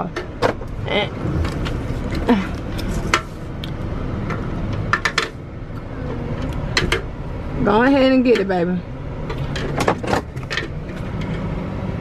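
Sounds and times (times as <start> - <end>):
low rumble: 0.2 - 9.8.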